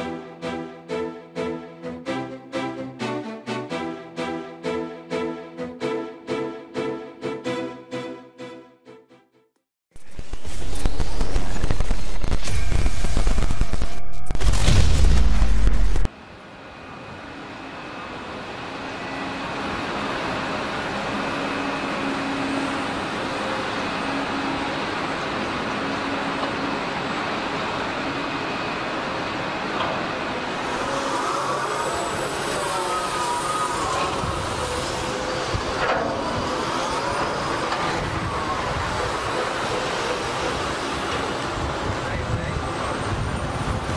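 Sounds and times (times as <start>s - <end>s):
machine running: 10.0s - 43.9s.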